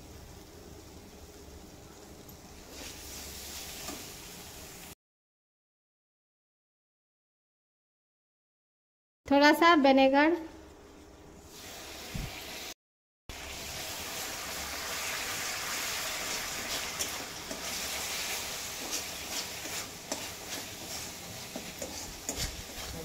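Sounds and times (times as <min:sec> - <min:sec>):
paste sizzling in hot oil: 0:02.5 - 0:05.0, 0:11.5 - 0:23.0
steel spoon scraping a pan: 0:16.3 - 0:23.0.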